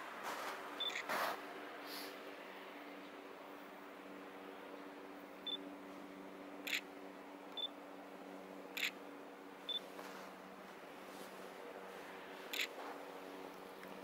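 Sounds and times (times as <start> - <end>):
faint electric hum: 0.0 - 14.0
camera focus beeps: 0.8 - 1.1, 8.8 - 9.0.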